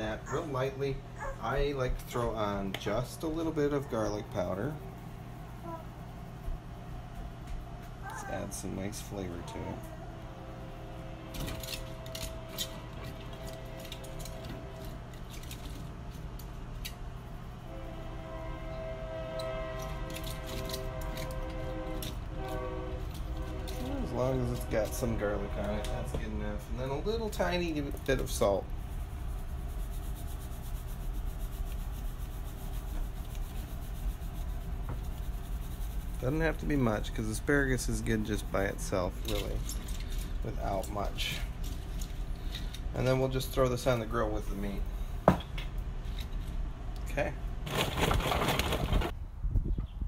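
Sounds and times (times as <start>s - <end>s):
low hum: 0.0s - 50.0s
salt mill grinding: 19.8s - 22.2s.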